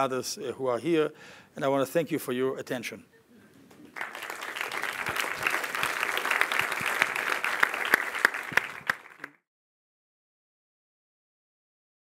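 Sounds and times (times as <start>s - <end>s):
audience applauding: 3.9s - 9.4s.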